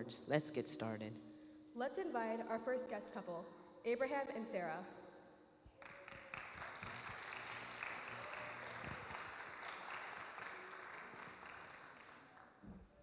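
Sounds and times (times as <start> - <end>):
congregation applauding: 5.8 - 12.6.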